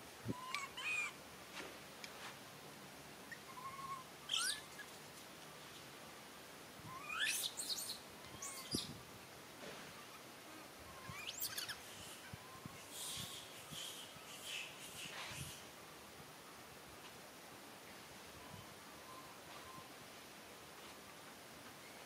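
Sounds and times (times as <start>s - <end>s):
infant monkeys squealing: 0.4s - 1.1s, 3.3s - 4.9s, 6.9s - 8.8s, 11.0s - 12.2s.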